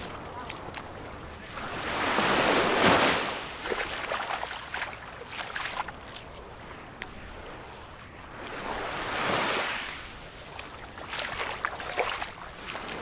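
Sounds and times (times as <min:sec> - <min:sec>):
soft wash of sea: 0:00.0 - 0:13.0.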